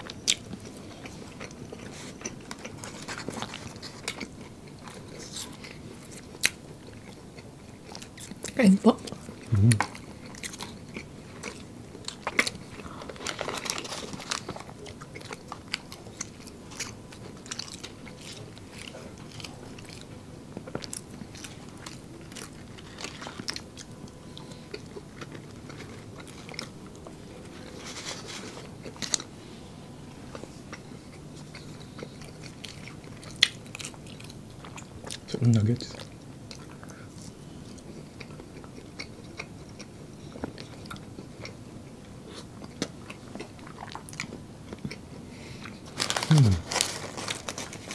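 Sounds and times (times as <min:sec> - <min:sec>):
people chewing food: 0:00.0 - 0:47.9.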